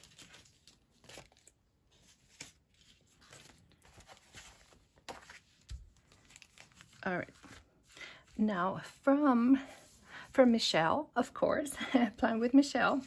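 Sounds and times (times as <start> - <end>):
paper rustling and crinkling: 0.0 - 8.4.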